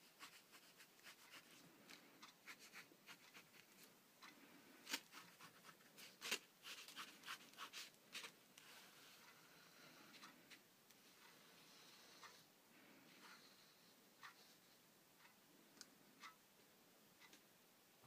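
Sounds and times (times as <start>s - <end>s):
pen scratching on paper: 0.0s - 1.6s, 2.4s - 3.8s.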